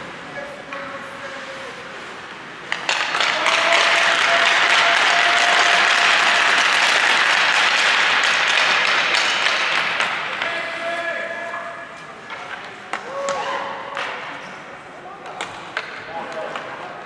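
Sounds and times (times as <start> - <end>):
applause and cheering: 3.3 - 8.8.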